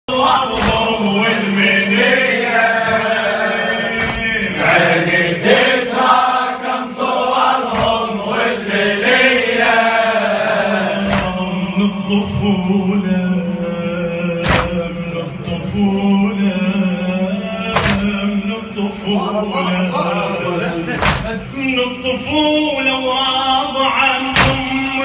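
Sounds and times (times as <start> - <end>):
sharp knocks: 0.5 - 1.0, 3.9 - 4.5, 7.6 - 8.2, 11.0 - 11.6, 14.4 - 15.0, 17.7 - 18.2, 21.0 - 21.5, 24.3 - 24.8
man chanting a religious poem: 11.2 - 25.0.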